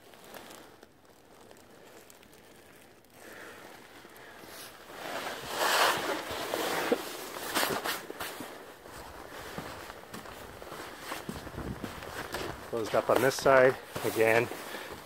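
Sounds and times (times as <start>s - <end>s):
rustling: 0.0s - 15.0s
footsteps crunching on snow: 0.1s - 15.0s
wind on microphone: 11.3s - 12.7s.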